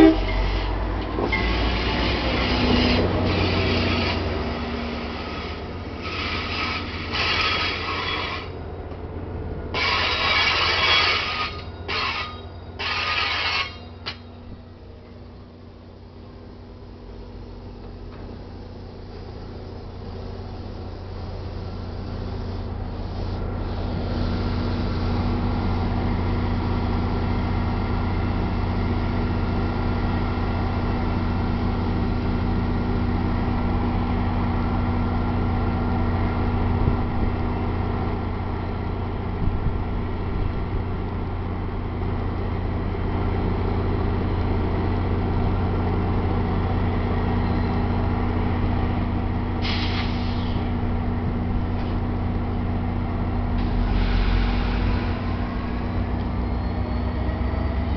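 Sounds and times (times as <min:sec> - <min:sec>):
diesel locomotive drone: 0:00.0 - 0:57.9
air brake hiss: 0:49.6 - 0:50.7, 0:53.6 - 0:55.7.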